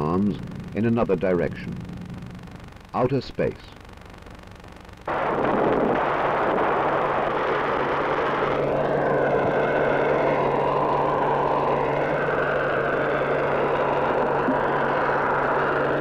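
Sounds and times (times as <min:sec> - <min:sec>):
rocket engine roaring: 0:05.0 - 0:16.0.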